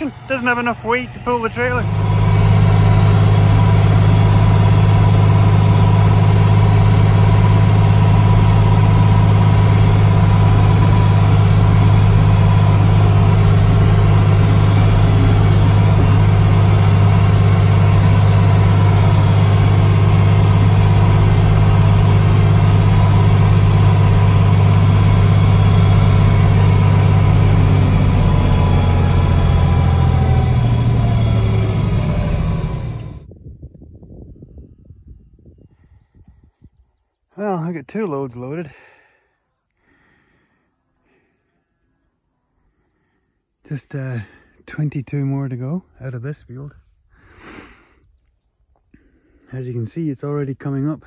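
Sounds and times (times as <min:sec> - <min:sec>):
tractor engine humming: 0:00.0 - 0:33.4.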